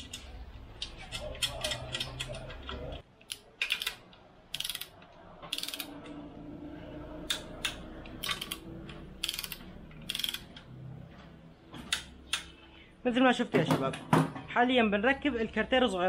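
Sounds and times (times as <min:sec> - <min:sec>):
ratchet wrench clicking: 0:03.3 - 0:06.0, 0:07.3 - 0:10.5.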